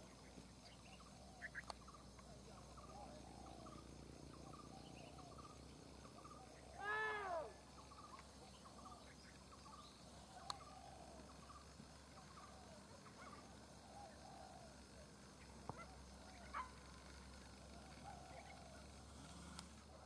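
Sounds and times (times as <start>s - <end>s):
animal calls: 6.2s - 8.2s.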